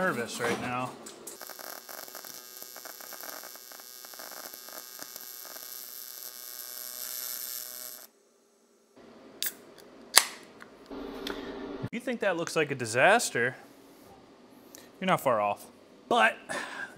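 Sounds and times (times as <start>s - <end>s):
welding arc buzzing: 1.3s - 8.2s.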